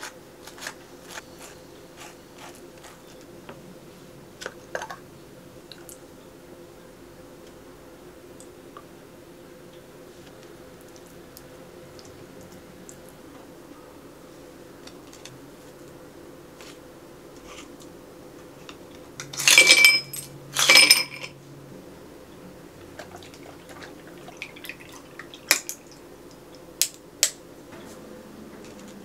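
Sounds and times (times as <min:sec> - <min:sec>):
faint steady hum: 0:00.0 - 0:29.0
glass ringing: 0:19.4 - 0:21.3.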